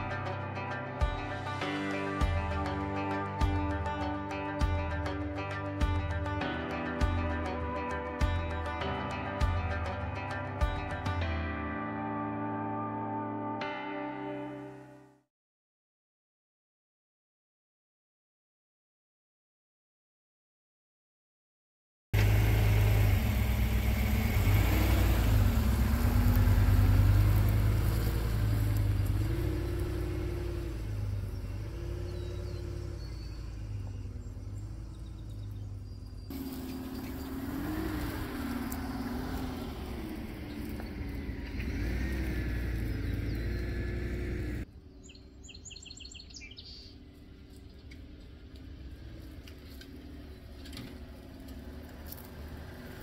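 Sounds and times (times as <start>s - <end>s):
truck engine driving: 0.0s - 11.3s, 22.2s - 53.0s
birds chirping: 22.2s - 51.8s.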